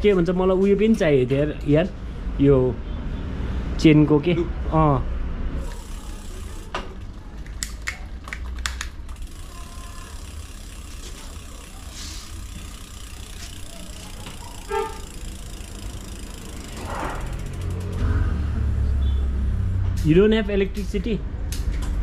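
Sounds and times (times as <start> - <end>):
low rumble of street traffic: 0.0 - 22.0
car horn toot: 14.7 - 15.1.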